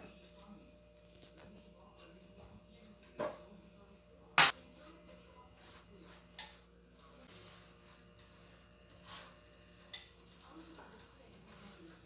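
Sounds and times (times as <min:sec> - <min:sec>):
spatula scraping a saucepan: 0:07.2 - 0:12.0.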